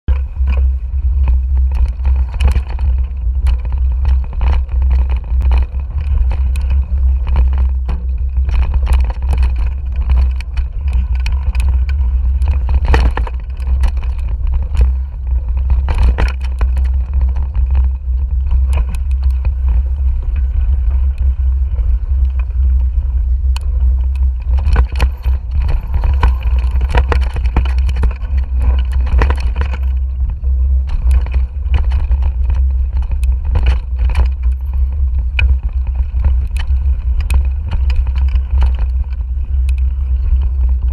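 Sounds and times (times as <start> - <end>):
wind rumble on microphone: 0.0 - 40.9
bike clicks and rattles: 0.1 - 40.9.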